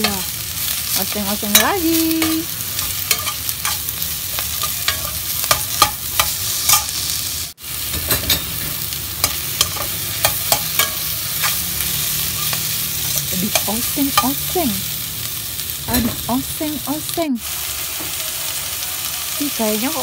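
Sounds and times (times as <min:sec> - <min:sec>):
beans sizzling in a wok: 0:00.0 - 0:20.0
spatula scraping a pan: 0:07.9 - 0:13.3.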